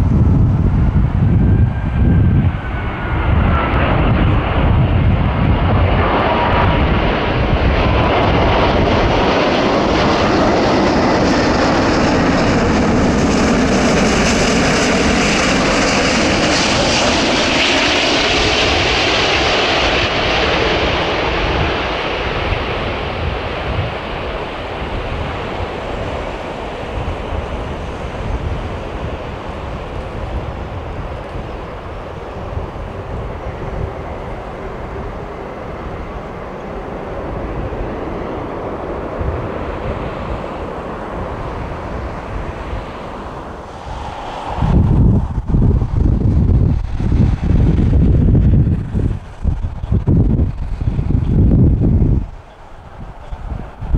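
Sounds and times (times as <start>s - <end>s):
jet airliner engines rushing: 0.0s - 53.9s.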